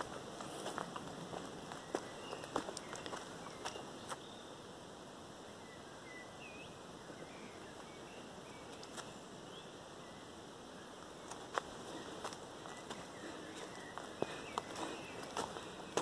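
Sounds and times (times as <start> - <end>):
footsteps on dry leaves: 0.0 - 4.2, 11.3 - 16.0
steady outdoor hiss: 0.0 - 16.0
bird chirps: 1.7 - 4.6, 5.6 - 16.0.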